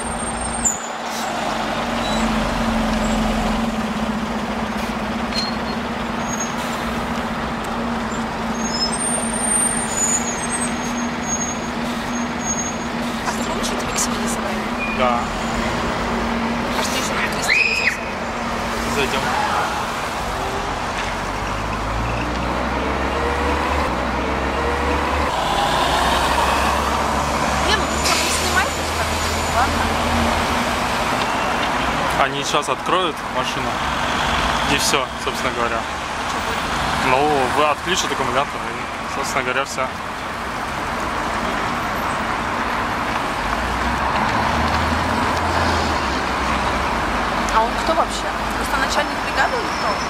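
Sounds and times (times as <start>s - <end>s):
bus driving past: 0.0s - 50.0s
city traffic noise: 0.0s - 50.0s
car driving past: 13.4s - 32.0s.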